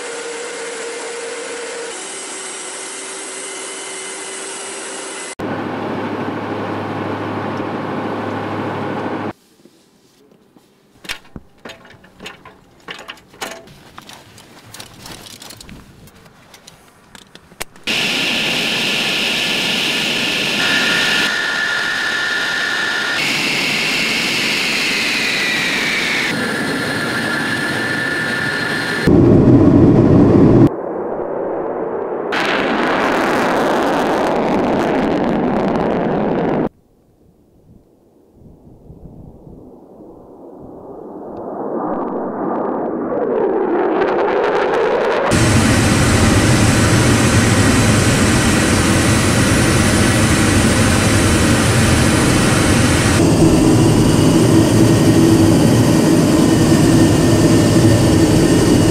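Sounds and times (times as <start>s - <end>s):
scattered clicks and knocks: 11.0s - 15.8s
jet engine whining: 17.8s - 30.7s, 41.4s - 58.9s.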